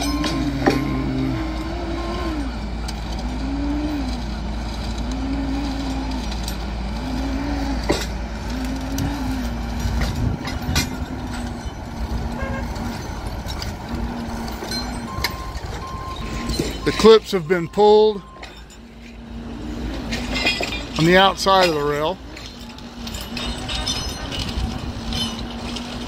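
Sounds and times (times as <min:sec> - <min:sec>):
sharp metallic knocks: 0:00.0 - 0:01.4
crane diesel engine revving: 0:00.0 - 0:26.0.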